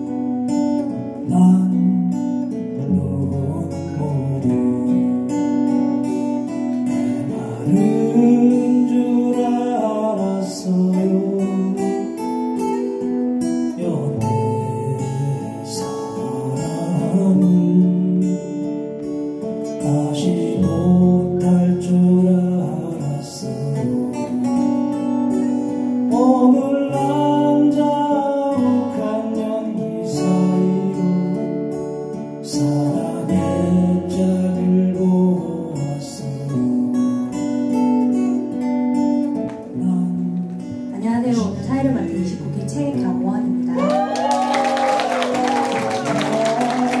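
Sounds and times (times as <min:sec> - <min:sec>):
acoustic guitars strummed and picked: 0:00.0 - 0:47.0
person singing: 0:06.9 - 0:13.0, 0:13.7 - 0:18.6, 0:26.0 - 0:37.3, 0:43.5 - 0:47.0.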